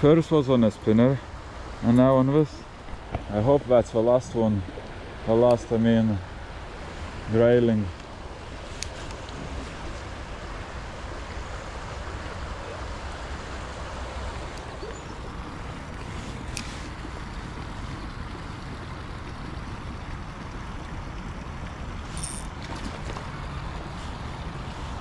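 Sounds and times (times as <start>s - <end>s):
river water flowing: 0.0s - 25.0s
wind rumbling on microphone: 2.6s - 19.0s.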